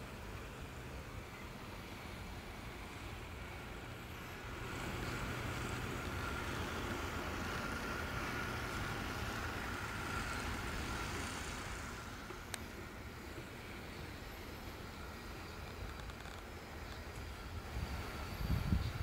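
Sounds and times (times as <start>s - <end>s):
distant mechanical drone: 0.0s - 19.0s
faint high whine: 0.0s - 19.0s
wind rumbling on microphone: 15.6s - 19.0s.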